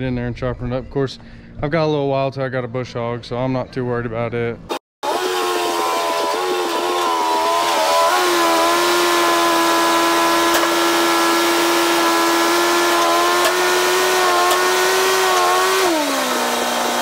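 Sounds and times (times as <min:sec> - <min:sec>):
tractor engine running: 0:05.0 - 0:17.0.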